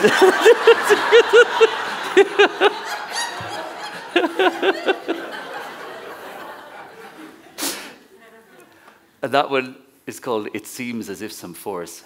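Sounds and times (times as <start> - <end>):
person laughing: 0.0 - 5.3.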